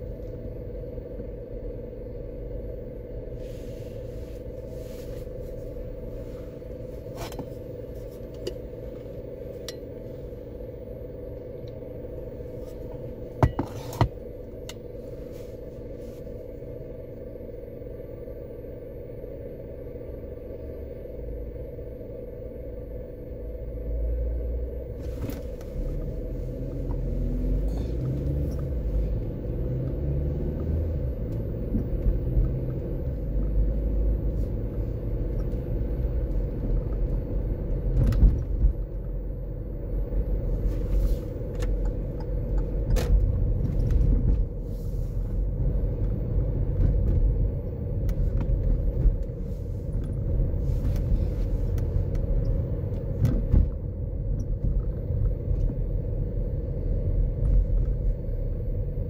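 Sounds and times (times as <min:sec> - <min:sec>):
car driving rumble from inside: 0:00.0 - 0:59.0
faint steady hum: 0:00.0 - 0:59.0.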